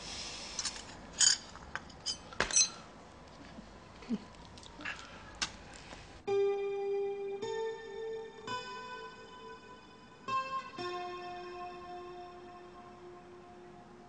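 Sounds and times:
low room hiss: 0:00.0 - 0:14.0
dishes and cutlery clinking: 0:00.7 - 0:02.9.

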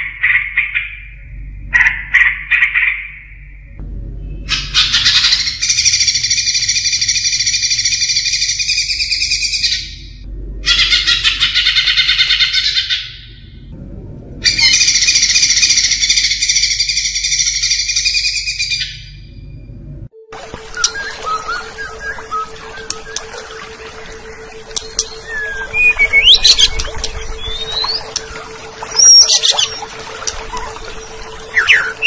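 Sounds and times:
bird singing high-pitched song: 0:24.8 - 0:29.8, 0:30.5 - 0:32.0.

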